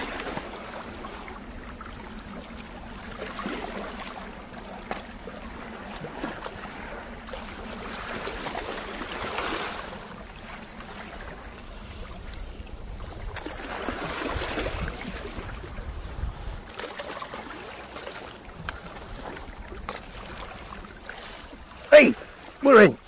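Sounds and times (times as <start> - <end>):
small waves washing over rock: 0.0 - 12.4, 13.2 - 22.9.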